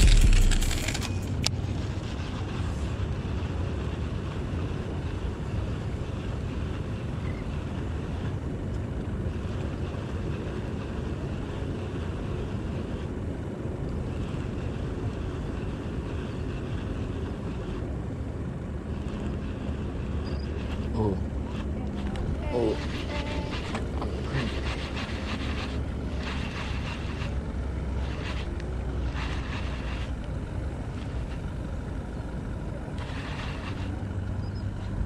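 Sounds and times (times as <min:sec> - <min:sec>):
wind rumble on microphone: 0:00.0 - 0:35.0.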